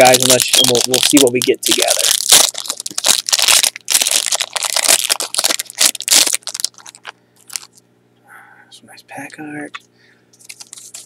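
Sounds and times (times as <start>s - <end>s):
foil wrapper crinkling and tearing: 0.0s - 7.8s, 10.4s - 11.0s.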